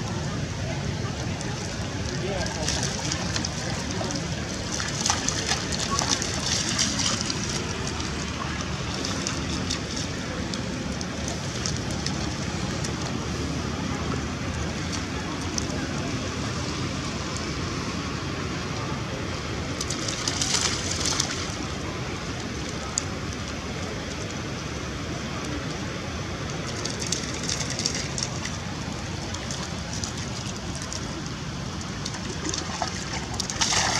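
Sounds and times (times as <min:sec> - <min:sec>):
monkeys splashing in water: 0:02.0 - 0:13.0, 0:19.7 - 0:21.9, 0:26.6 - 0:33.9.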